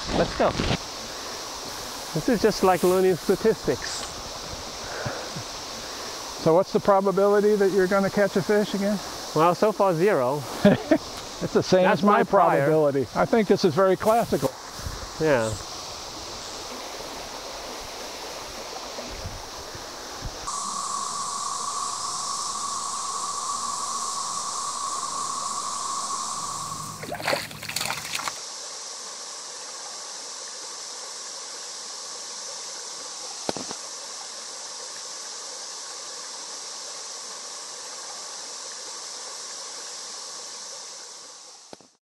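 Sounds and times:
stream running over rocks: 0:00.0 - 0:20.4, 0:25.8 - 0:29.9
water splashing: 0:26.5 - 0:28.4.

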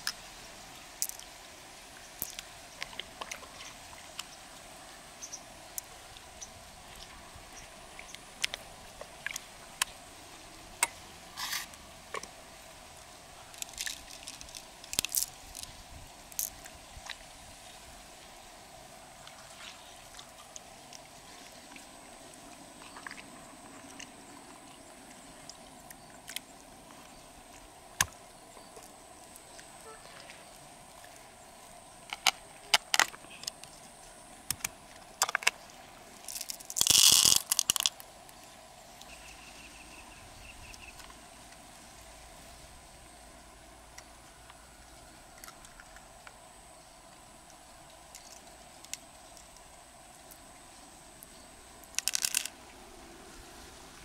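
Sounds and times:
pearls clicking together: 0:01.0 - 0:01.3, 0:13.5 - 0:16.6, 0:36.2 - 0:38.0, 0:51.8 - 0:52.5
pearls rattling into shell: 0:13.6 - 0:15.7, 0:36.3 - 0:38.0, 0:51.9 - 0:52.5.

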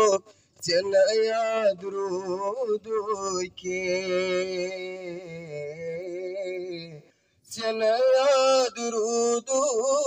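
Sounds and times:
person singing unaccompanied: 0:00.0 - 0:10.0.

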